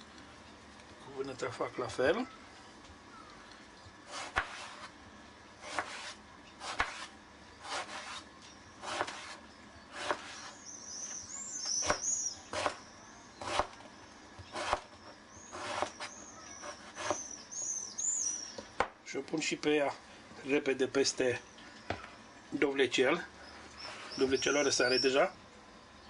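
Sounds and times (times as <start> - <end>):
birds chirping: 0.2 - 4.0, 8.4 - 26.0
knife cutting on plastic board: 4.1 - 4.9, 5.6 - 8.2, 8.8 - 10.6, 14.5 - 14.9, 15.5 - 17.2.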